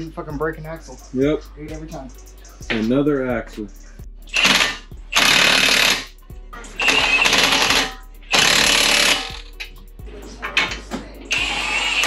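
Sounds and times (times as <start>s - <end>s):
impact wrench hammering: 4.3s - 6.1s, 6.8s - 9.5s.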